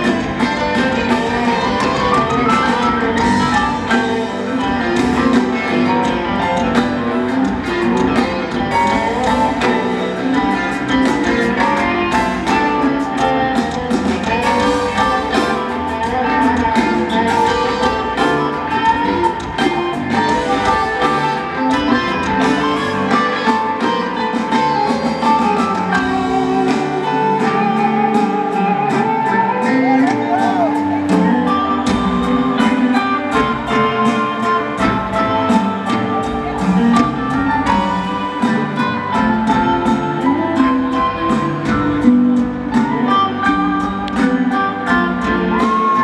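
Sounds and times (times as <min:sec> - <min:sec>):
electric guitar: 0:00.0 - 0:46.0
rock band playing live: 0:00.0 - 0:46.0.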